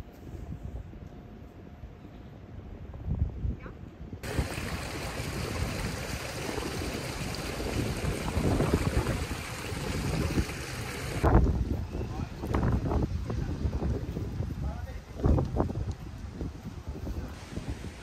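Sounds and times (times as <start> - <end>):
wind buffeting microphone: 2.7 - 18.0
running water rushing: 4.2 - 11.3.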